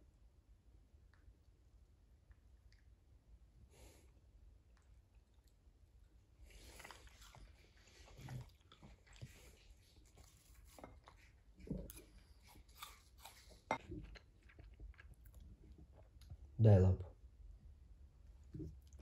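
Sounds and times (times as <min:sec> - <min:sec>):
dogs chewing and crunching food: 0:04.6 - 0:16.6.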